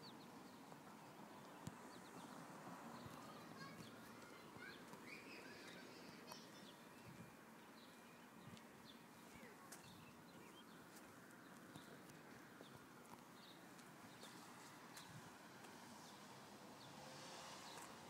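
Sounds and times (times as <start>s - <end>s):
small bird chirps: 3.0s - 10.8s.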